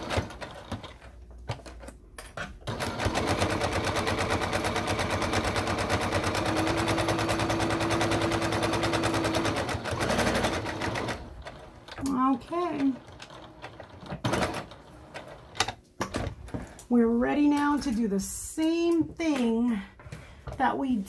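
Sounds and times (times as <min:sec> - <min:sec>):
sewing machine stitching: 0:00.0 - 0:01.1, 0:02.6 - 0:15.7.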